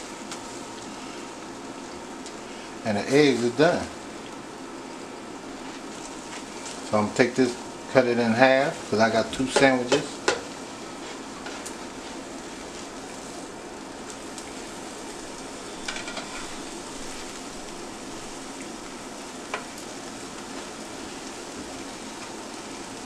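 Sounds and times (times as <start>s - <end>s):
eggs sizzling in a frying pan: 0.0s - 23.0s
spatula knocking against pan: 9.5s - 10.5s.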